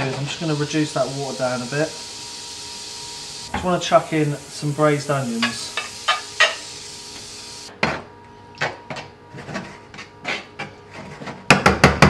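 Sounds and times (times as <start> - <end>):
brief sizzle: 0.0 - 7.7.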